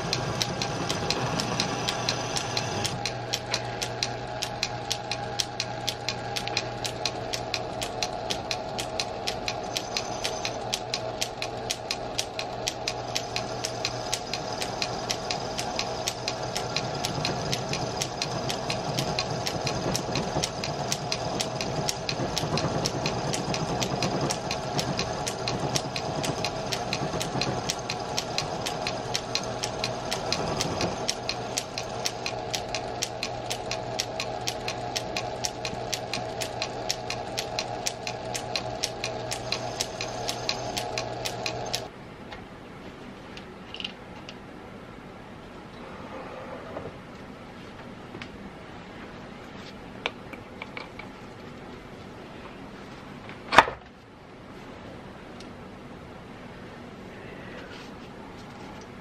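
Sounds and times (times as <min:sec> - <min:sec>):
metal lathe humming and ticking: 0:00.0 - 0:41.9
rough metal cutting noise: 0:00.0 - 0:41.9.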